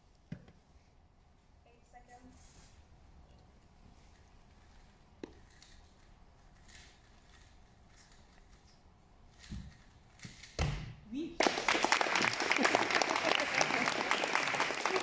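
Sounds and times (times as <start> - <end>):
puzzle cube being turned: 4.1 - 10.5.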